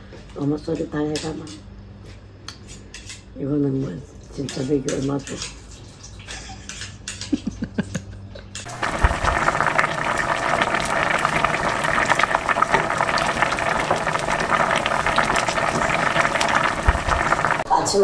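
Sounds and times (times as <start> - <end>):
pot of food bubbling: 8.7 - 17.7.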